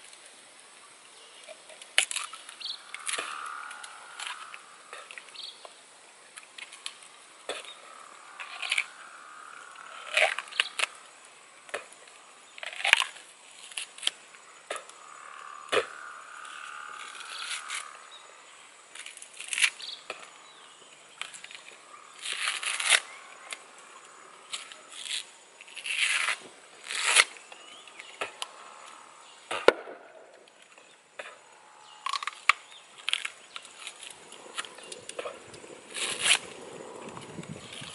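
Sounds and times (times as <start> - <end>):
crunchy biting and chewing: 7.5 - 11.0, 22.2 - 23.1, 31.9 - 37.9.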